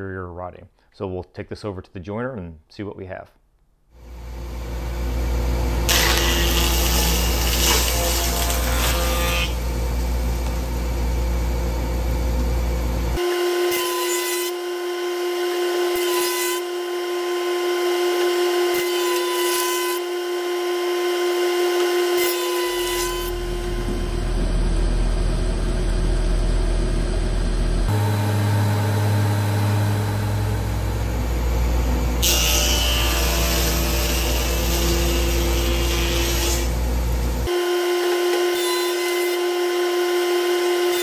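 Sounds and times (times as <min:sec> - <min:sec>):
jointer machine hum: 0:04.0 - 0:41.0.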